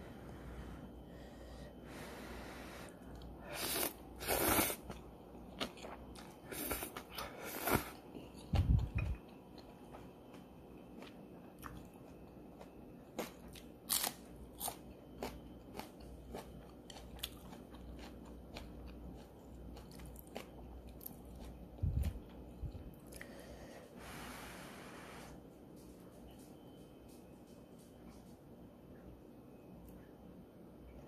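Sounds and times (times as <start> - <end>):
crunching and chewing: 3.1 - 23.4.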